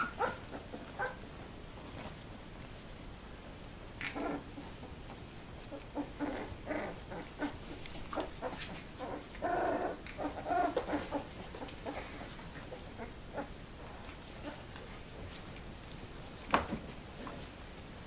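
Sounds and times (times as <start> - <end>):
puppies squeaking and whimpering: 0.0 - 1.3, 5.7 - 14.8.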